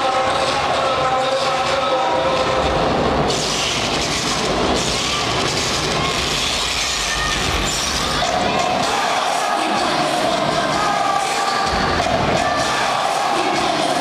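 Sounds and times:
crowd din: 0.0s - 14.0s
music: 0.0s - 14.0s.

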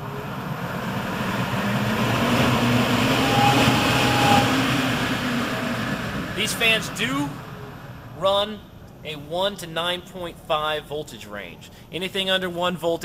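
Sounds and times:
brief fan whine: 0.0s - 8.9s
fan air rush and motor hum: 0.0s - 13.0s.

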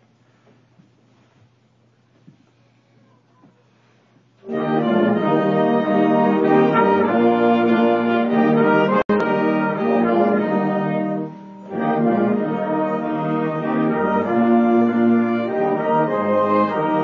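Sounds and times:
school band playing hymn: 4.4s - 17.0s.

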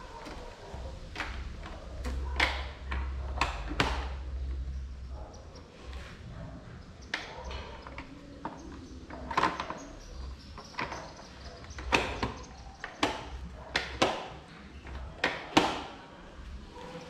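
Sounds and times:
plastic knocks and clacks: 0.1s - 4.6s, 7.0s - 16.0s.

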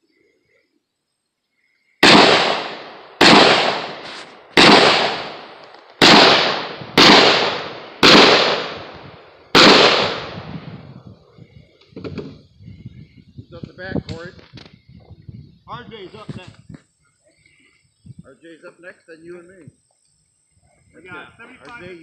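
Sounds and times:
gunshots with long echo: 2.0s - 10.9s.

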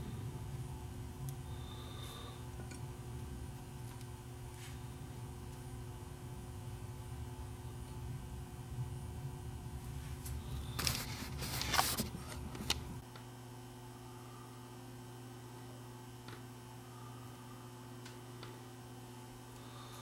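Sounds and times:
low rumble: 0.0s - 13.0s
electrical mains hum: 0.0s - 20.0s
crackling and clicking handling noises: 3.7s - 4.8s, 10.2s - 13.3s.

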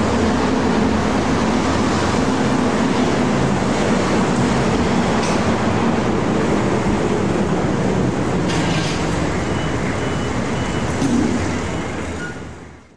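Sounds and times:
street traffic: 0.0s - 12.9s.

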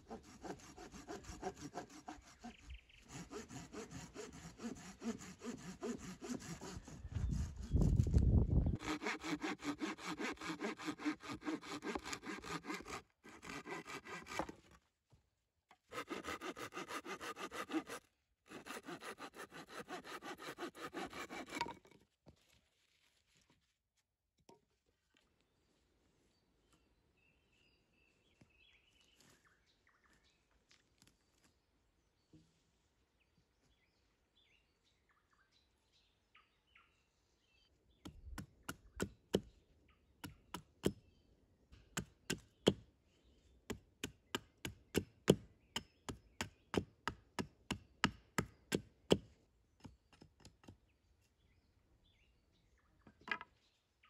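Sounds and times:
hatchet chopping log: 8.8s - 14.6s, 18.6s - 21.9s, 41.8s - 42.8s, 43.7s - 50.8s.

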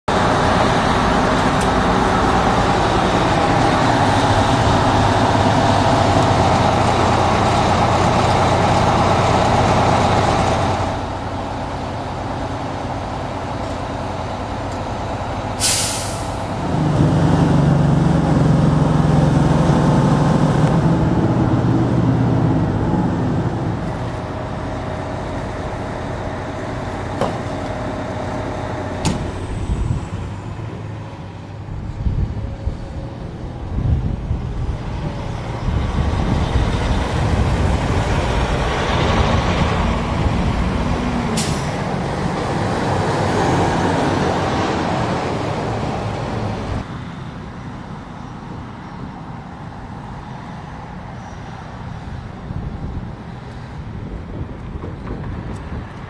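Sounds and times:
heavy diesel truck engines: 0.1s - 56.0s
air brake release hiss: 15.6s - 16.5s.

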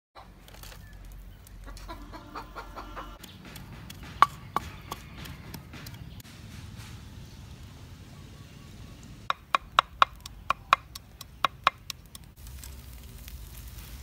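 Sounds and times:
chickens clucking: 1.6s - 6.2s
wooden pestle pounding in mortar: 3.2s - 6.2s, 9.3s - 12.2s.

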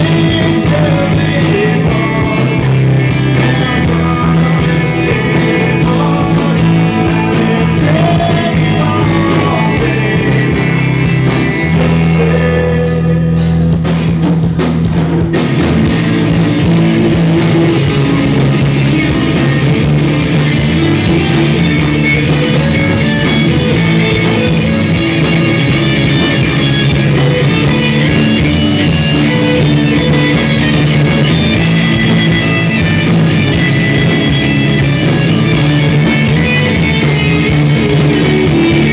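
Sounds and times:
sung vocals: 0.0s - 13.8s
rock band playing: 0.0s - 38.9s.

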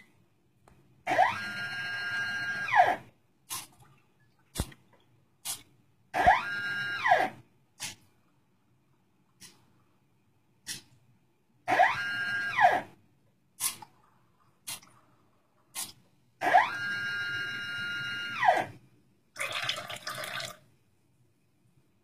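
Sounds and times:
liquid rushing into glass: 19.4s - 20.6s.

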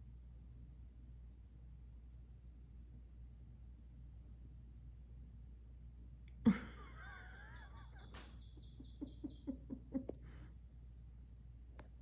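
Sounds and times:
bird calls from tv: 5.7s - 10.0s.

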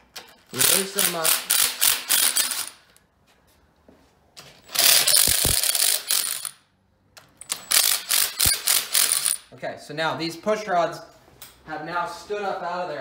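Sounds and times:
power driver spinning and clattering: 4.6s - 6.5s.

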